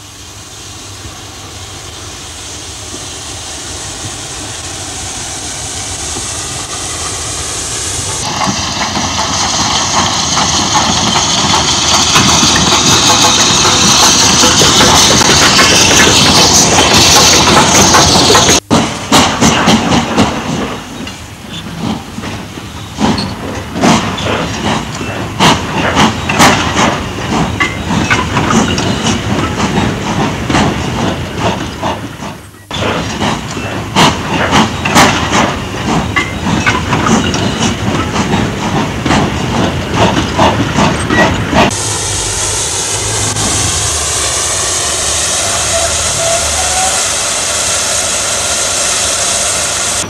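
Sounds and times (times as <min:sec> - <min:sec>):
steam locomotive hissing: 0:00.0 - 0:50.0
clanks and knocks: 0:08.2 - 0:41.7.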